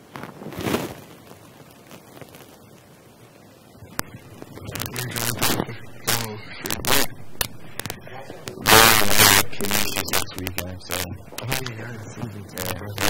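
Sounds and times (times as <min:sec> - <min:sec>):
clothing rustling against microphone: 0:00.0 - 0:02.9.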